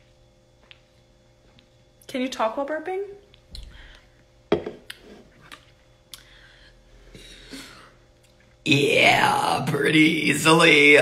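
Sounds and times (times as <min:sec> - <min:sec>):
woman speaking: 0:02.1 - 0:03.3.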